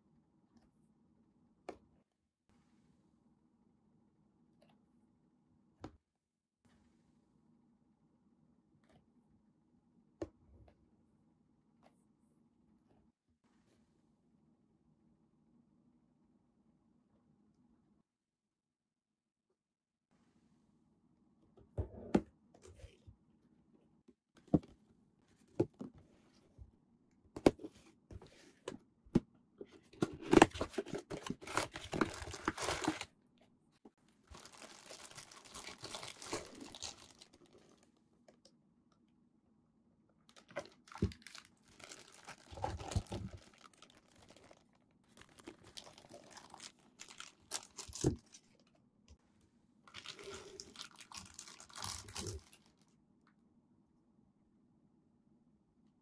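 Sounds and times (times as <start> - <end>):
packaging tearing and rustling: 30.1 - 33.1, 34.3 - 37.9, 40.3 - 48.5, 49.9 - 52.7
plastic bags crinkling: 30.4 - 33.1, 34.3 - 37.9, 40.3 - 48.6, 49.9 - 52.8.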